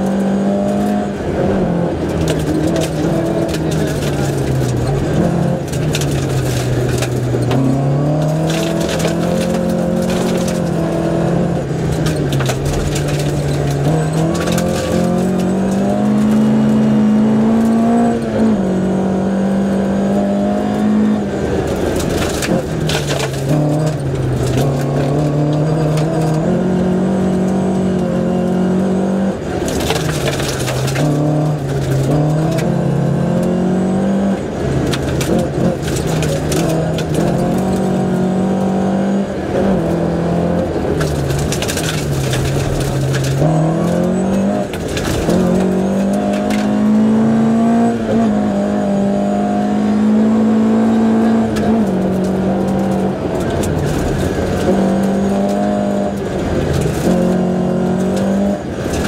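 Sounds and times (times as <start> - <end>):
rally car engine revving: 0.0 - 59.0.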